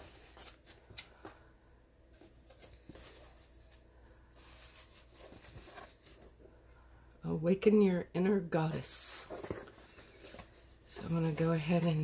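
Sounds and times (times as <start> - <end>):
cardboard rustle: 2.1 - 6.4, 9.2 - 12.0.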